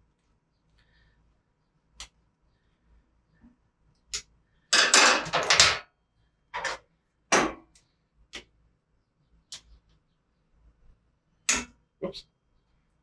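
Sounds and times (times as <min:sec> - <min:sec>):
metal clicks and knocks: 0:04.8 - 0:05.8.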